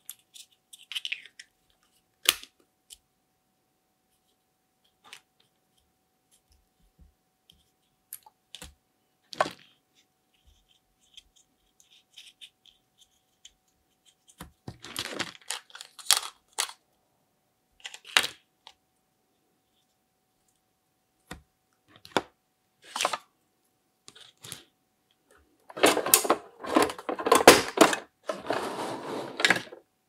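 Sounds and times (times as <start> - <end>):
plastic toys clicking and clattering: 0.0 - 1.5, 14.7 - 16.8, 25.7 - 29.8.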